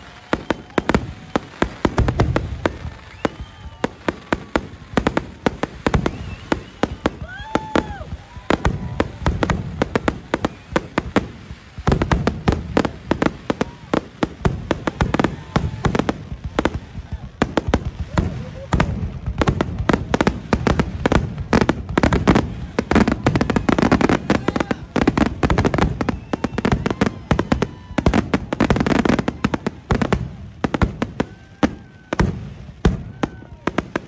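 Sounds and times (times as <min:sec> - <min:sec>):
fireworks bangs and crackles: 0:00.0 - 0:34.0.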